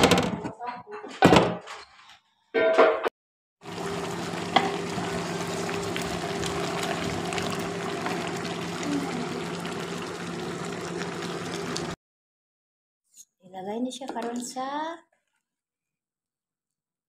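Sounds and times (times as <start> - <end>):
food sizzling in a pot: 3.6 - 12.0.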